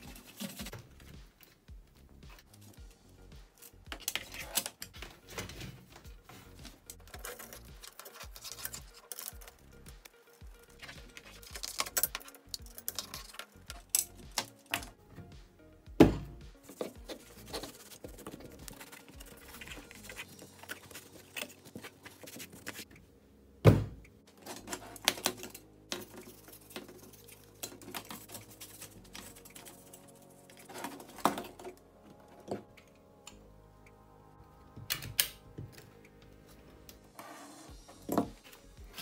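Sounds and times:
quiet background music: 0.0 - 39.0
metal parts clicking and knocking: 6.6 - 9.6, 10.2 - 15.0.

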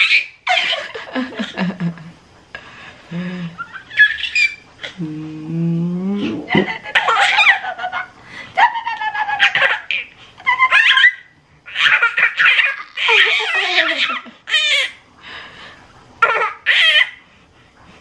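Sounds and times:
baby laughing: 0.0 - 1.1, 3.6 - 5.0, 6.4 - 15.0, 16.2 - 17.2.

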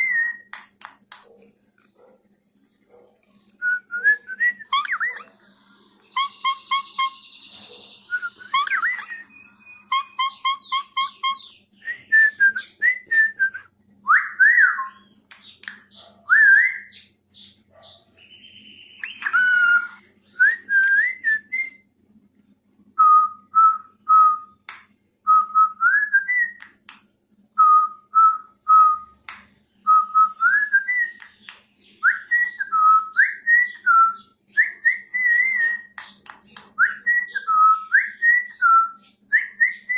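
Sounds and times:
sharp bird chirps: 4.6 - 5.4, 6.1 - 12.0, 16.8 - 20.5.

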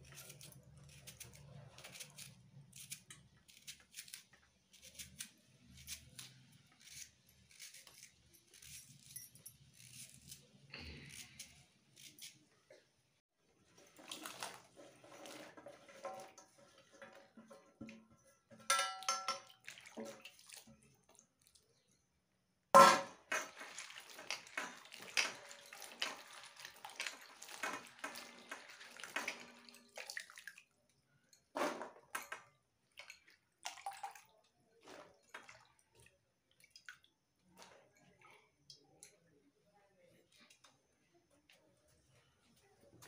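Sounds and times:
water splashing and sloshing: 13.4 - 21.9, 22.8 - 38.6
metal pan clinking: 15.6 - 19.6, 22.8 - 26.3.

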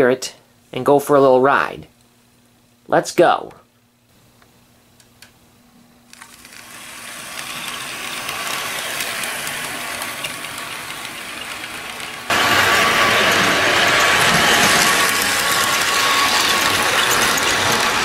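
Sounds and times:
model train rattling on track: 6.2 - 18.0.

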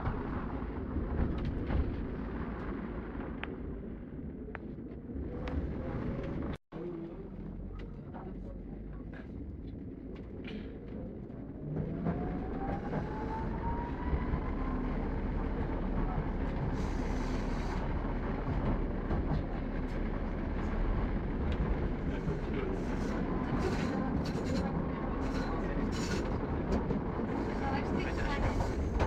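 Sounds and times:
wheels rumbling on rails: 0.0 - 29.0.

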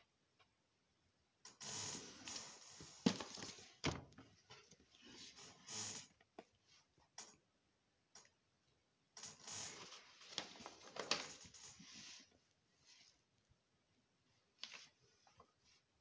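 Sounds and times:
paper rustling and shuffling: 2.1 - 4.0, 9.7 - 12.4, 14.6 - 15.8.

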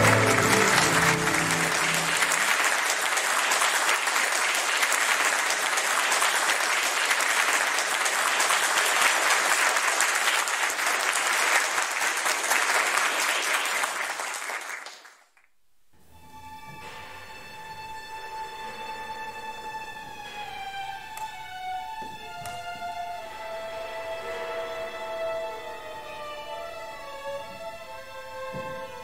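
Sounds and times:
audience applauding: 0.0 - 15.3.

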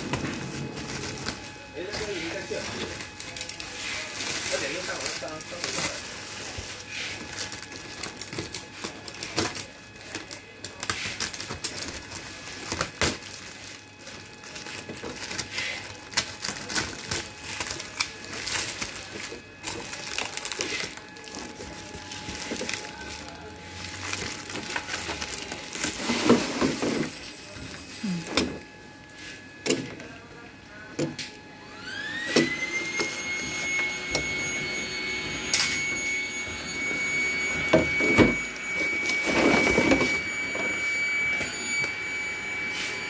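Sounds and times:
plastic wrapping crinkling: 0.0 - 29.2.

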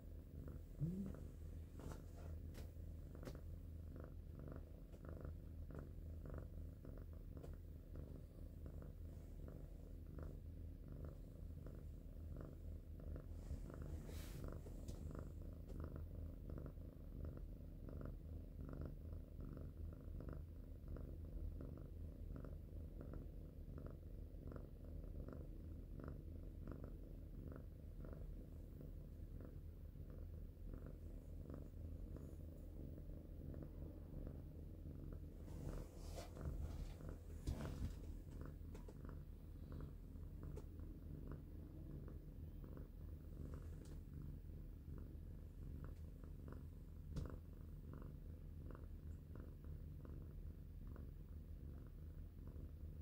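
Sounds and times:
cat purring: 0.0 - 53.0.

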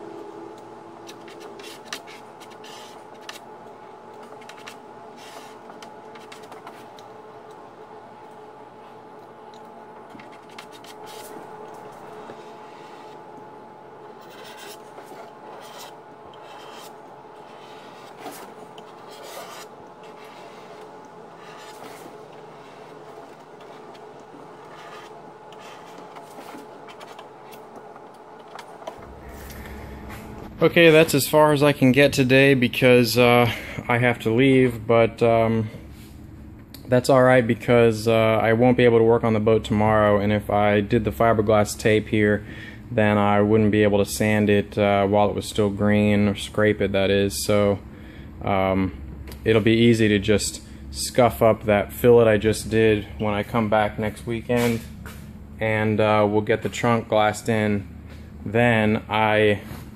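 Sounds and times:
steady hum: 0.0 - 59.9
spreader scraping and tapping: 0.5 - 7.6, 9.2 - 13.5, 14.1 - 30.2.

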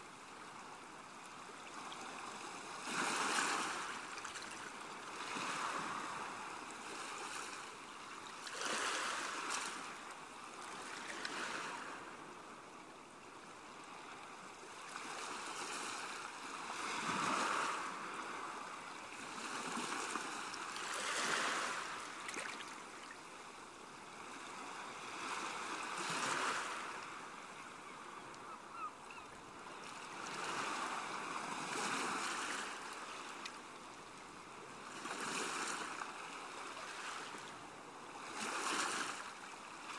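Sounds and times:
ocean waves breaking: 2.0 - 7.6, 8.4 - 10.0, 15.0 - 23.2, 24.3 - 27.4.

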